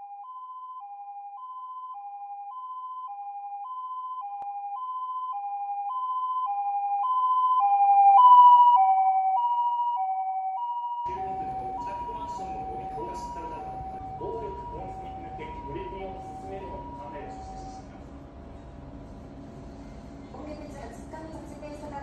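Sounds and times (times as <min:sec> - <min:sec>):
two-tone emergency siren: 0:00.0 - 0:18.2.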